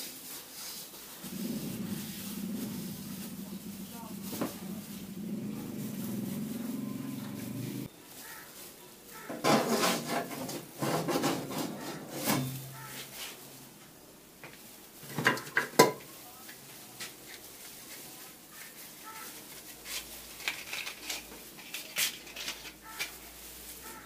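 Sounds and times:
steady low hum: 1.2 - 7.9
pan scraping on metal stovetop: 9.3 - 13.0.

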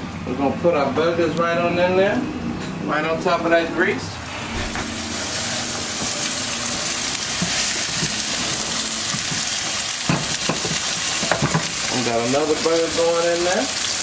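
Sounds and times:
burger patties sizzling in pan: 4.5 - 14.0.

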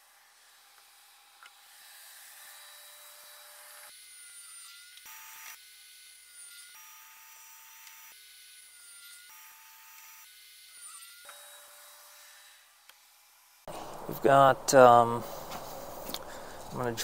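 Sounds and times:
steady hiss: 13.7 - 17.0.

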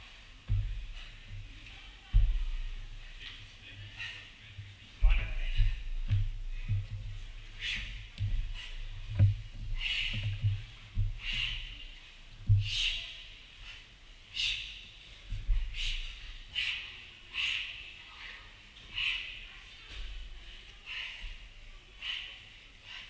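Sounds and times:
dull thumps: 0.4 - 3.3, 5.0 - 12.9.

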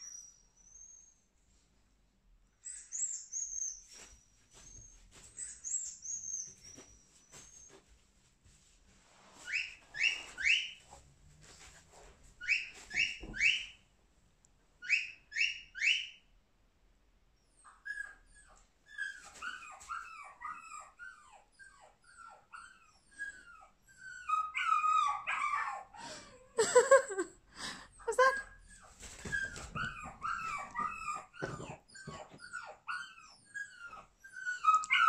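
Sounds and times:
dog whimpering: 17.6 - 35.0.

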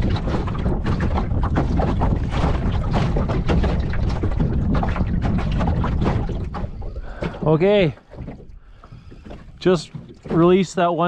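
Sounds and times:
wind buffeting the microphone: 0.0 - 10.9
waves slapping against a hull: 0.0 - 11.0.

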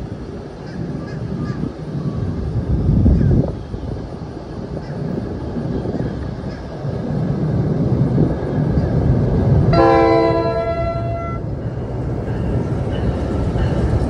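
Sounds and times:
train rumbling: 0.0 - 14.0
train air horn blast: 9.7 - 11.4.

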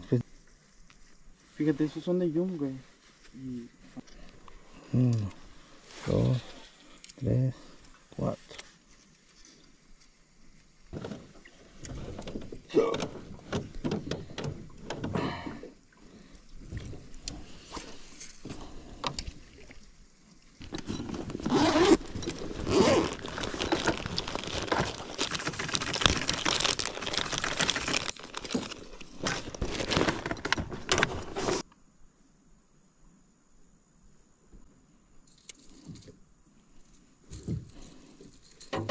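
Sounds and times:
fishing gear clicks and rustles: 20.6 - 31.6, 37.3 - 38.9
rummaging through soft bag: 20.7 - 31.6.

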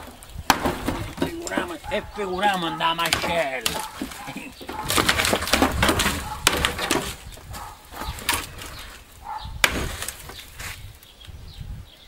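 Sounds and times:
wood cracking and creaking: 0.0 - 11.4
sharp knocks: 2.7 - 7.2.

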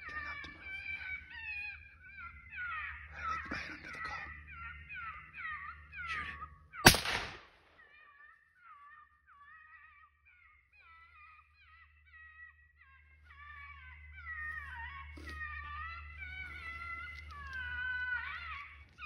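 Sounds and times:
gunshot with echo: 6.9 - 7.6.

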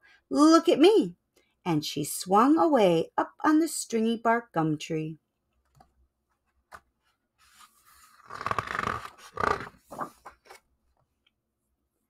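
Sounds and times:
paper page rustling: 6.7 - 10.7.

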